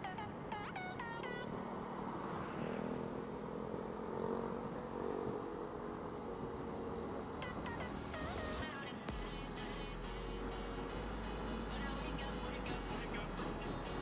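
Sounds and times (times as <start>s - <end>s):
wind: 0.0s - 12.1s
road noise: 0.0s - 14.0s
motorcycle engine running: 9.1s - 14.0s.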